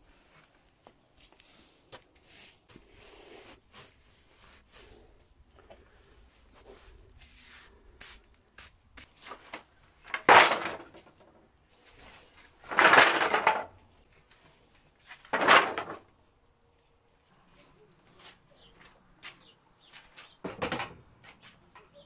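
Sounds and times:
wooden planks clattering on concrete: 9.0 - 16.2, 19.2 - 22.0.

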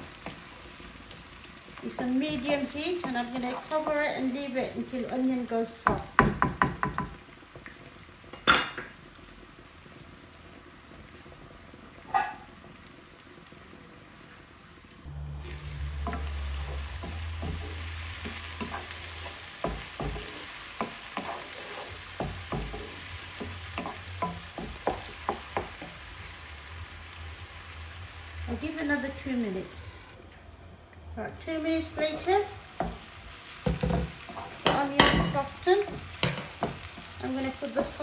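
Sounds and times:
onions sizzling in oil: 0.0 - 38.0
low hum: 15.0 - 19.3
wooden spatula scraping pan: 16.0 - 25.9.

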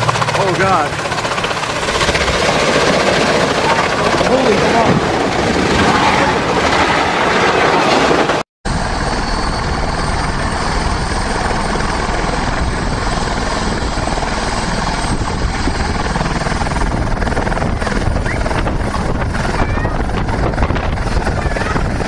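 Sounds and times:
rushing downwash noise: 0.0 - 12.6
helicopter rotor and turbine: 0.0 - 22.0.

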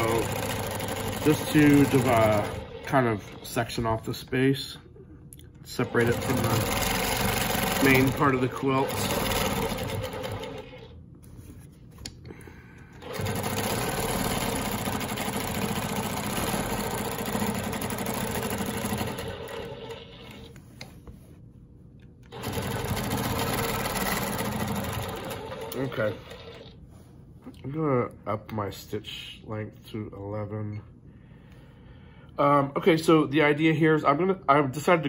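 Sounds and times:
quilting machine stitching: 0.0 - 4.1, 5.7 - 11.0, 13.0 - 20.5, 22.3 - 26.8.

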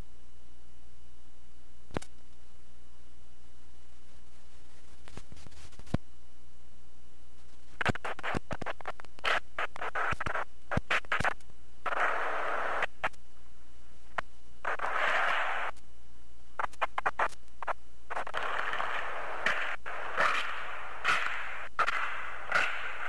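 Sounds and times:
bursts of hiss: 7.7 - 13.2, 16.6 - 23.0
sharp clicks and crackles: 7.8 - 12.0, 16.6 - 23.0.

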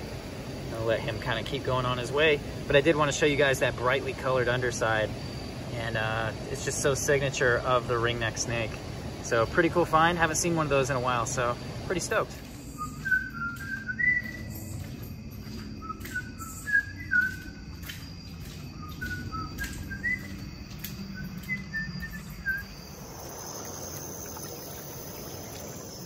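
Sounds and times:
high insect trill: 0.0 - 26.0
whistled chirps: 12.4 - 26.0
scattered clicks: 19.0 - 22.2.

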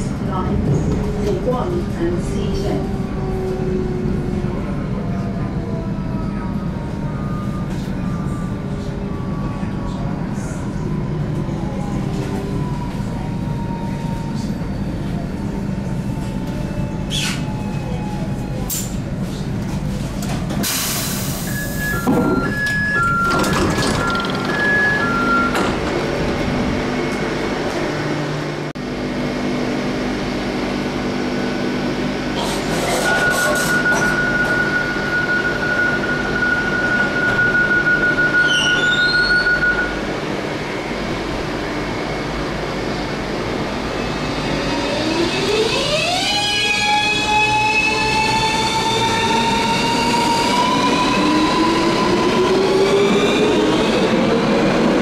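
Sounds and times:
train rumbling: 0.0 - 55.0
traction motor whine rising: 44.0 - 55.0.

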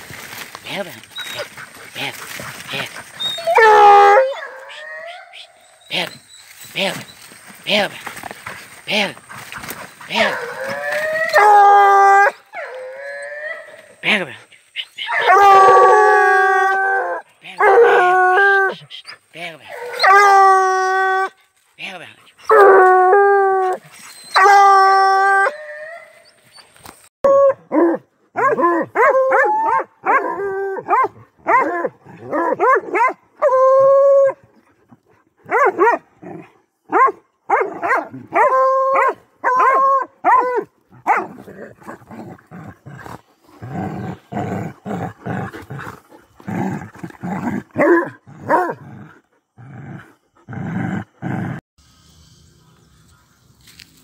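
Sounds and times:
dogs yelping barks: 2.6 - 7.3, 9.2 - 14.0, 14.7 - 21.3, 27.2 - 34.4, 35.5 - 36.0, 36.9 - 42.0
dog howling: 3.2 - 6.2, 10.1 - 13.9, 15.0 - 18.9, 19.7 - 21.4, 27.2 - 34.4
rough low dog barking: 9.2 - 11.6, 27.6 - 33.2, 35.4 - 36.1, 36.9 - 47.0.

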